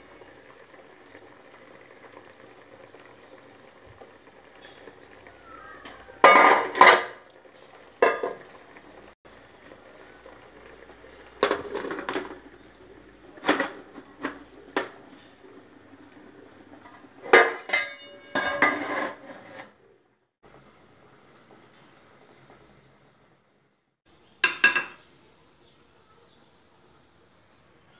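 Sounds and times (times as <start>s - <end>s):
metal trays clanking: 17.2s - 19.5s.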